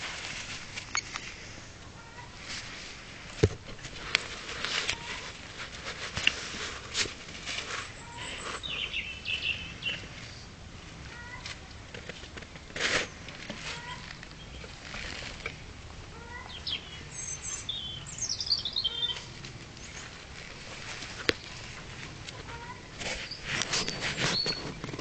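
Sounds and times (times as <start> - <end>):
clicks and scuffles of movement: 2.4 - 8.9, 11.1 - 15.7, 19.1 - 25.0
puppies squeaking: 22.5 - 24.8.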